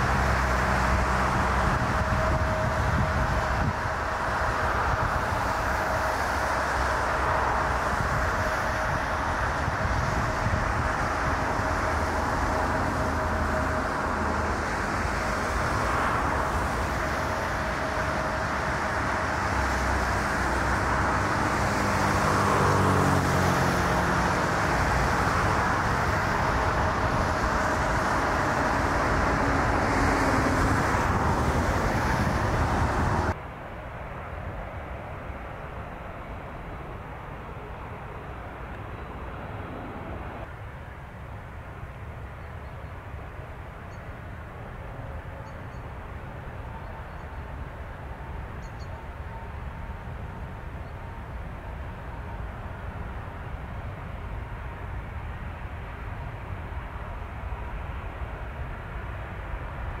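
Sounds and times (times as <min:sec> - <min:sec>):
vehicle passing by: 0:00.0 - 0:33.4
road traffic rush: 0:00.0 - 1:00.0.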